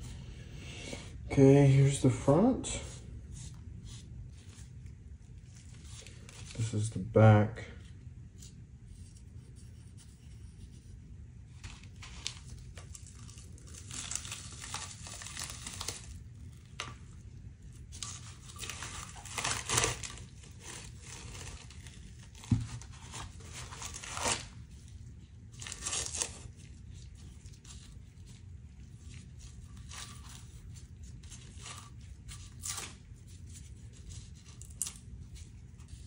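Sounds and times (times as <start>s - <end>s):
tape tearing and crinkling: 11.6s - 17.1s, 17.8s - 36.0s.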